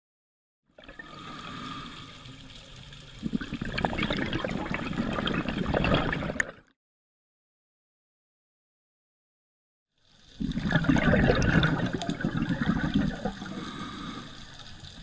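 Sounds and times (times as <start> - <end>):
scuba breathing hiss: 1.0 - 2.6, 13.2 - 15.0
gurgling exhaust bubbles: 3.2 - 6.6, 10.4 - 14.1.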